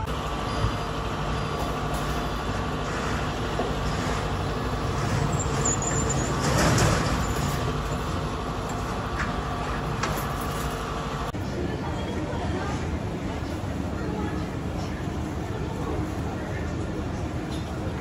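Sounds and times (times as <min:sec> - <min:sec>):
vehicle engine humming: 0:00.0 - 0:11.4
road noise: 0:00.0 - 0:18.0.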